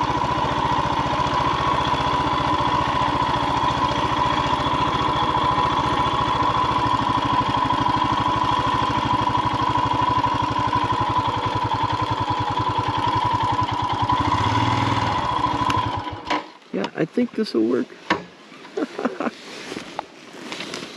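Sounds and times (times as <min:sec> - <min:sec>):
motorcycle engine idling: 0:00.0 - 0:16.3.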